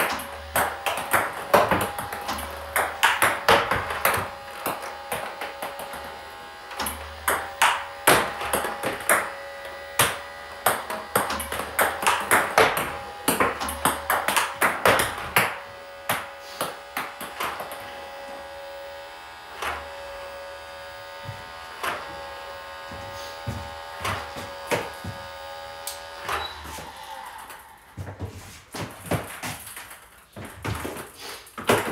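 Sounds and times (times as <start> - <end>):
table tennis ball clicking: 0.0 - 6.0
electric hum: 0.0 - 31.9.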